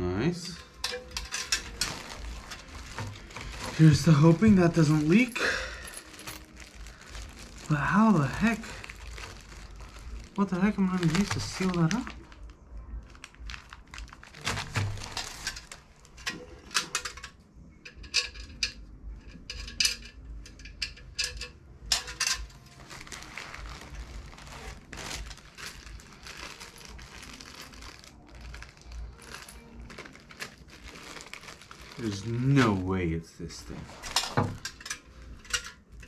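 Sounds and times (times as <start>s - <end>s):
plastic bags and wrap rustling: 0.1s - 17.4s, 19.5s - 36.0s
sharp clicks and small clatters: 14.4s - 22.6s.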